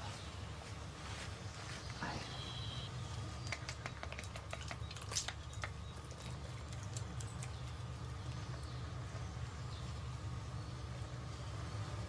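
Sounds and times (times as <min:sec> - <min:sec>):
steady low hum: 0:00.0 - 0:12.0
beak clicks and taps: 0:03.4 - 0:08.7.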